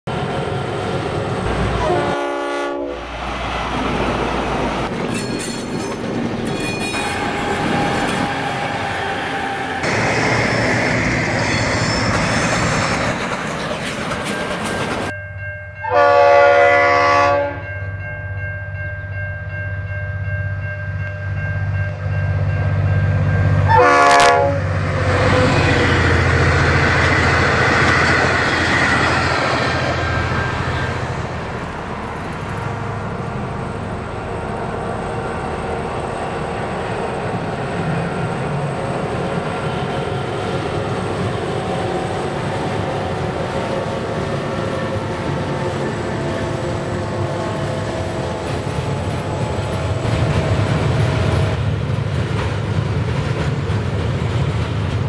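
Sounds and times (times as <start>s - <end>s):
train horn blasts: 1.5s - 3.1s, 15.8s - 17.7s, 23.4s - 25.9s, 43.8s - 51.6s.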